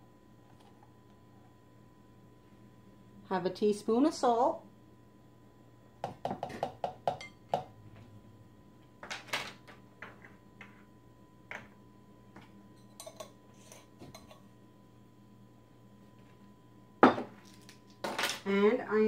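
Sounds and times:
spoons and jars clinking: 12.8s - 14.4s.

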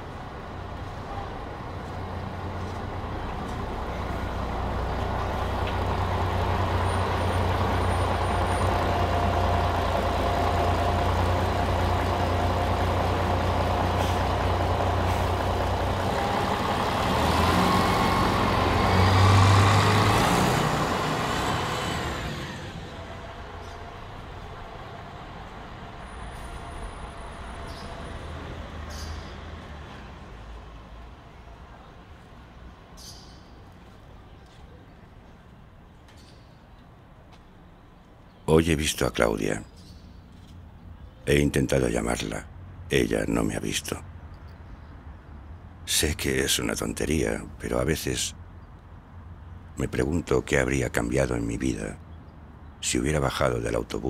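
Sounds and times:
bus engine running: 0.0s - 32.6s
street traffic: 0.0s - 54.0s
air brakes hissing: 13.8s - 15.6s.

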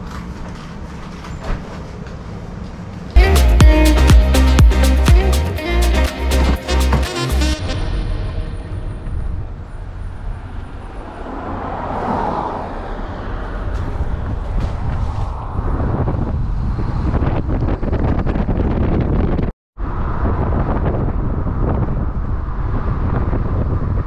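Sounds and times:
road traffic noise: 0.0s - 17.8s
wind rumbling on microphone: 7.6s - 24.0s.

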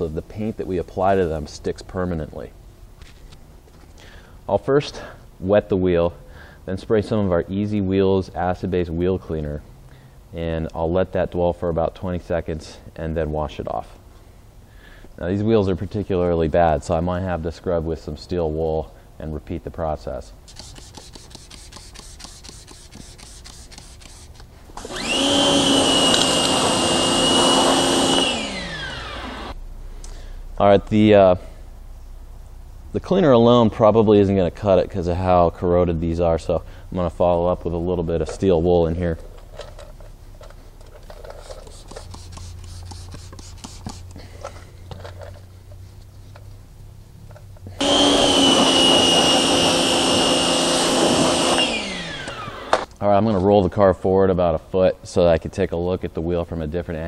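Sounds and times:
steel wool scrubbing metal: 20.5s - 24.4s
pressure washer spraying: 20.5s - 28.3s
pressure washer whine: 24.8s - 29.6s, 47.8s - 52.9s.

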